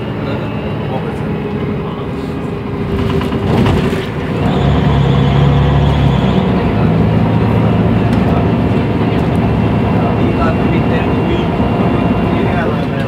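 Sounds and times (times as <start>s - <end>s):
bus engine: 0.0s - 13.0s.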